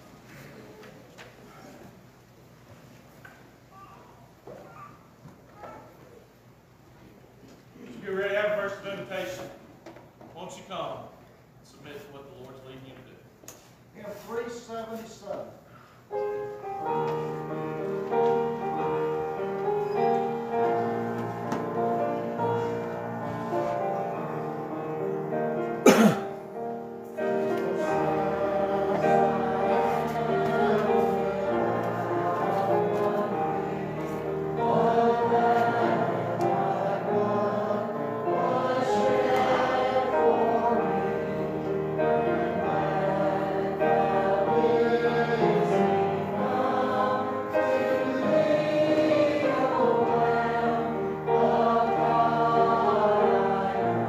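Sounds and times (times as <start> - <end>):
congregation singing a hymn: 7.8 - 9.6, 14.4 - 54.0.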